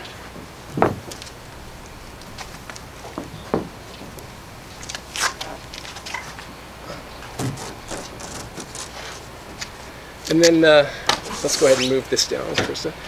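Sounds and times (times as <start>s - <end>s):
dull thump: 0.4s - 1.3s, 3.1s - 4.1s, 7.4s - 8.8s
panel sheet rustling and flexing: 7.2s - 9.9s, 11.1s - 12.8s.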